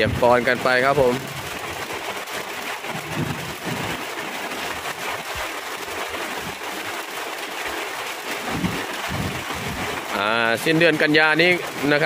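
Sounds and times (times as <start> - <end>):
steady rain falling: 0.0 - 12.0.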